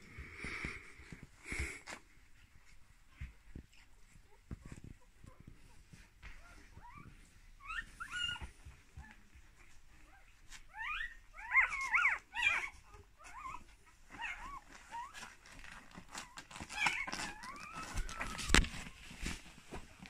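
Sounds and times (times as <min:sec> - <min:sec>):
puppies squeaking and whimpering: 0:03.8 - 0:19.3.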